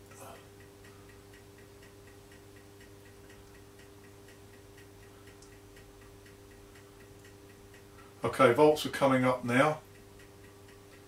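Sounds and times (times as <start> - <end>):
faint mains hum: 0.0 - 11.0
fast regular ticking: 0.0 - 11.0.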